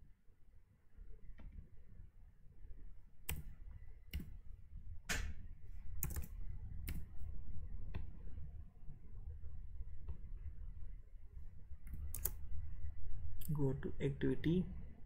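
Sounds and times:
faint low hum: 0.0s - 15.0s
computer keyboard keystrokes: 3.3s - 3.5s, 6.0s - 7.1s, 11.8s - 12.4s.

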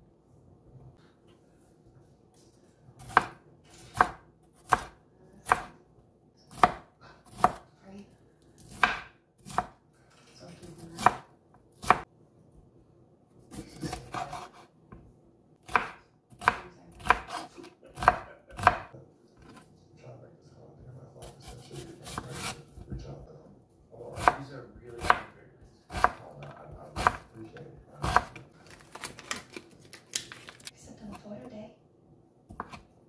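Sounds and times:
knife chopping on wooden board: 3.0s - 5.8s, 6.5s - 7.7s, 8.6s - 9.8s, 11.0s - 12.1s, 13.8s - 15.0s, 15.6s - 19.6s, 21.2s - 23.0s, 24.1s - 27.4s, 28.0s - 28.4s, 32.5s - 32.9s.

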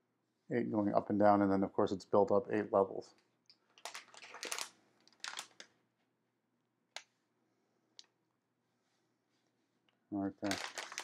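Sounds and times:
plastic bag rustling: 3.8s - 5.7s, 10.4s - 11.0s.

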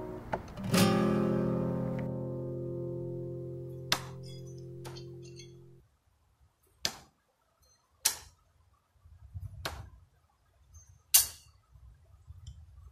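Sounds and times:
music track: 0.0s - 5.8s
knives striking wooden targets: 3.9s - 5.7s, 6.8s - 7.2s, 8.0s - 8.4s, 11.1s - 11.5s.

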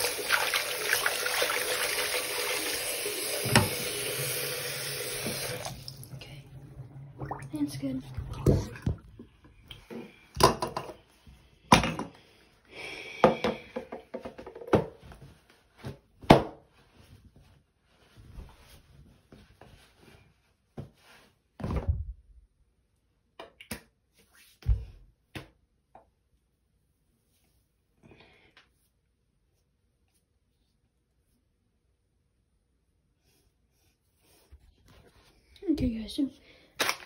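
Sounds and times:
cloth towel rustling: 15.0s - 21.7s.

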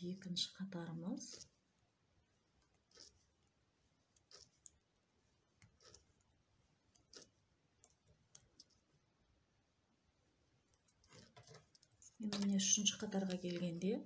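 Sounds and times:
knitting needles clicking: 2.6s - 9.0s, 10.7s - 13.8s.

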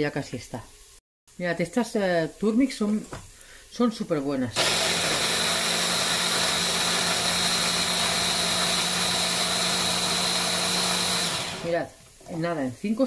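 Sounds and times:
stick blender motor whining: 4.6s - 11.8s.

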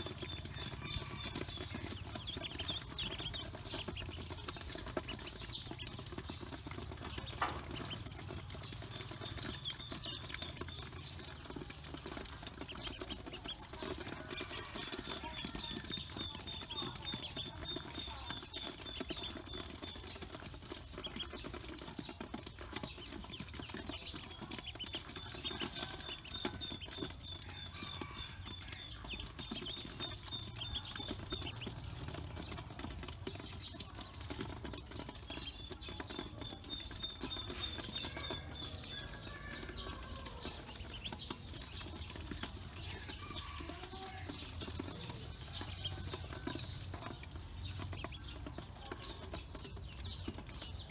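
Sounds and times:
ducklings pecking feed: 0.0s - 50.9s
ducklings peeping: 0.0s - 50.9s.

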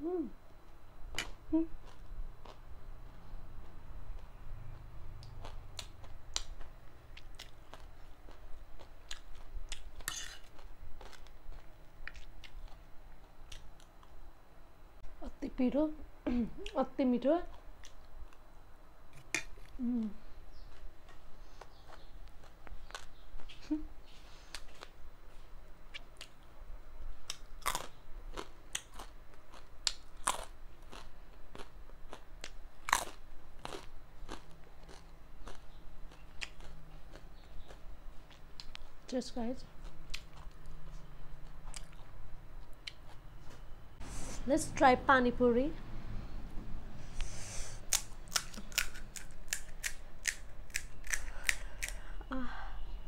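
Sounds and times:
crunching snack: 27.2s - 38.8s, 47.9s - 52.0s.

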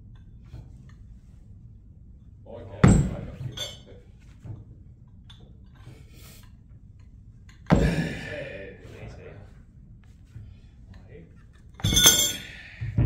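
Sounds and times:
metal weights clanking down: 2.8s - 3.9s, 11.8s - 12.6s.

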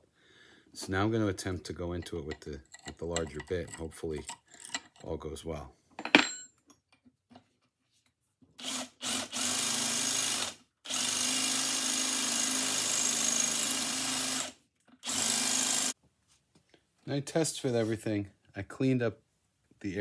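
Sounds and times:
drill boring in bursts: 8.6s - 16.0s.

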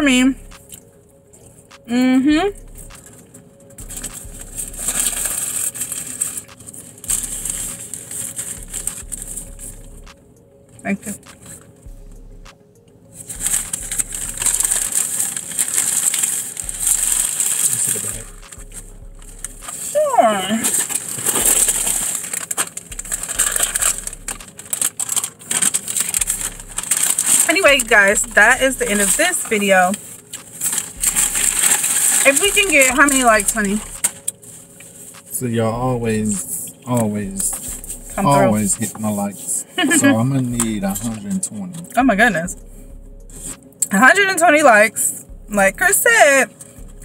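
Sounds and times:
paper wrapper rustling: 3.0s - 9.8s, 13.1s - 35.4s.

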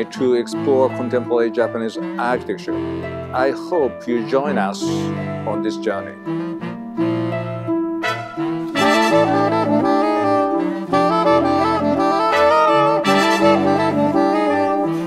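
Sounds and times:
instrumental jazz music: 0.0s - 15.0s
horn melody: 6.2s - 15.0s
walking bass line: 6.3s - 15.0s.

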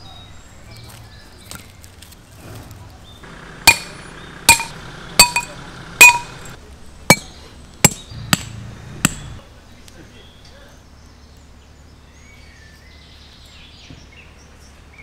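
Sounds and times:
hammer striking metal stakes: 3.3s - 9.4s.

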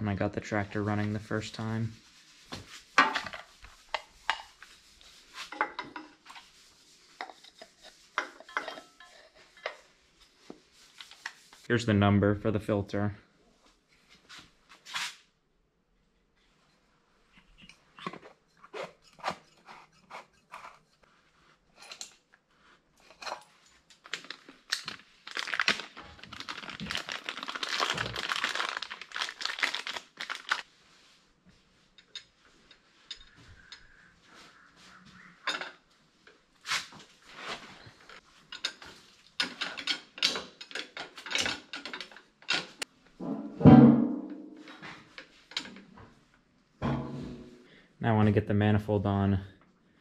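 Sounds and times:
metal parts and tools clinking: 8.2s - 9.8s, 37.8s - 42.8s
packaging crinkling: 24.0s - 30.6s.

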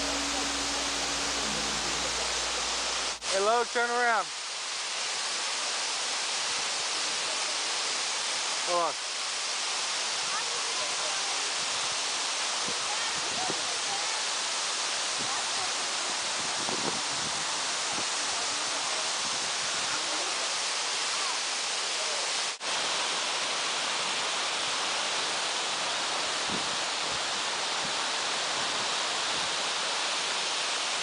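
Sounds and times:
waterfall pouring: 0.0s - 5.7s.

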